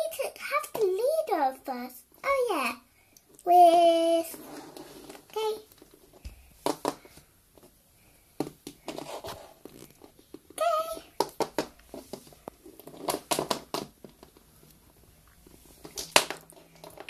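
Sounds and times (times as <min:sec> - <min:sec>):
child high-pitched vocal sound: 0:03.4 - 0:04.4, 0:05.3 - 0:05.7, 0:10.6 - 0:11.1
plastic toys tapping on wooden floor: 0:06.1 - 0:07.2, 0:10.3 - 0:14.4.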